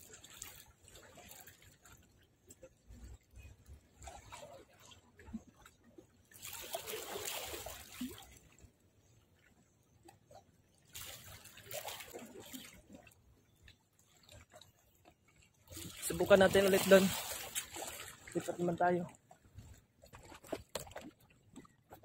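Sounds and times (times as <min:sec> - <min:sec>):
small waves lapping at shore: 0:00.0 - 0:22.0.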